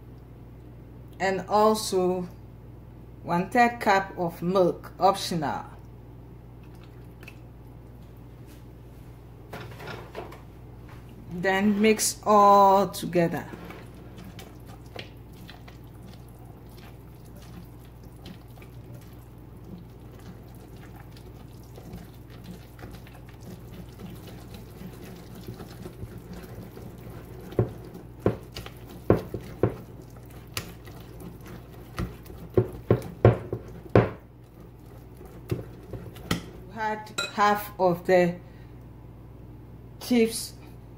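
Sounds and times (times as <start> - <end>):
whisk stirring batter: 13.2 - 36.9
whisk clinking on glass bowl: 37.2 - 37.5.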